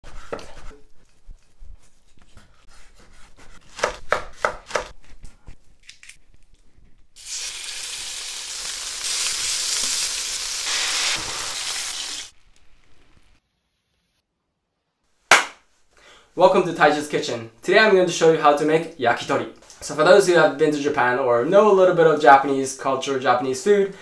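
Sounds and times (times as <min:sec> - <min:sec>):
skewers sizzling in frying pans: 0:07.2 - 0:13.4.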